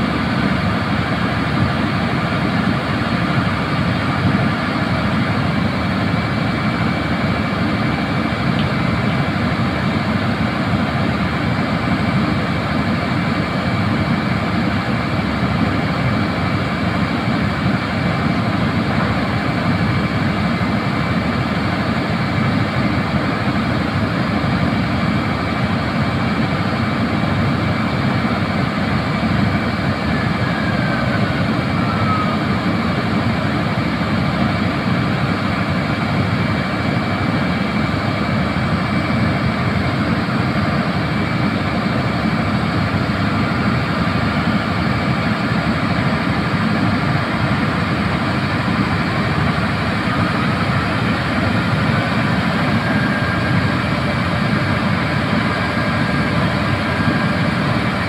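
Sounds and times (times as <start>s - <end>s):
drilling rig machinery running: 0.0s - 58.0s
thin steady whine: 0.0s - 58.0s
short falling squeal: 30.1s - 32.6s.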